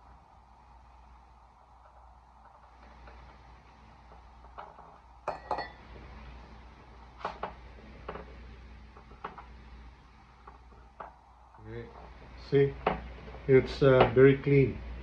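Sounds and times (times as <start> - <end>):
sharp clicks and knocks: 10.4 - 14.2.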